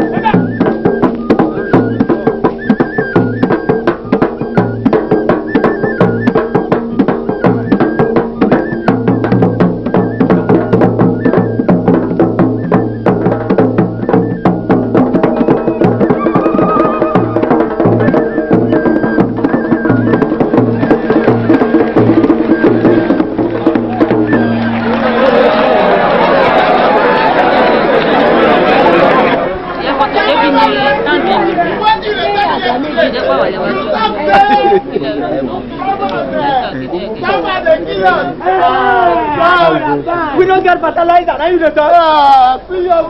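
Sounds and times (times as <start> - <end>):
drums: 0.0 - 29.4.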